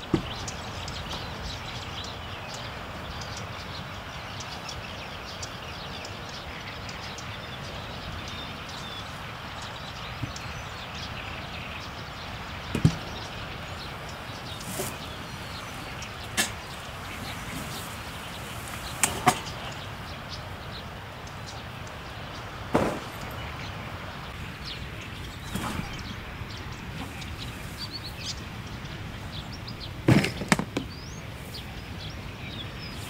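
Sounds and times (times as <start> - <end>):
steady wind: 0.0 - 33.0
sharp knocks: 22.7 - 23.4.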